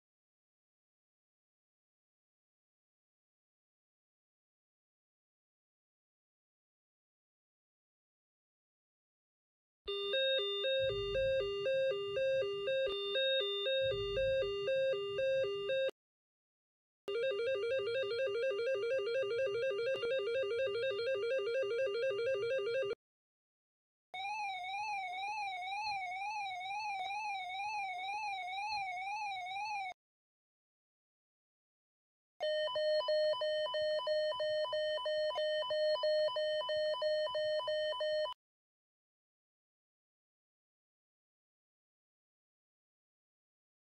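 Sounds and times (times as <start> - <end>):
electronic two-note alert beep: 9.9 - 15.9.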